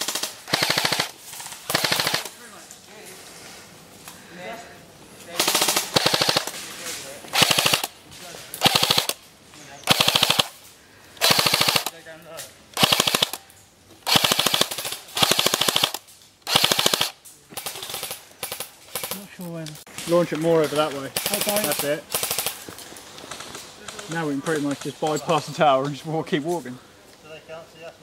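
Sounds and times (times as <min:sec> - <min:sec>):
airsoft rifle bursts: 0:00.0 - 0:02.4, 0:05.4 - 0:06.6, 0:07.3 - 0:08.0, 0:08.6 - 0:09.2, 0:09.8 - 0:10.6, 0:11.2 - 0:12.0, 0:12.8 - 0:13.4, 0:14.0 - 0:19.2, 0:21.2 - 0:22.7.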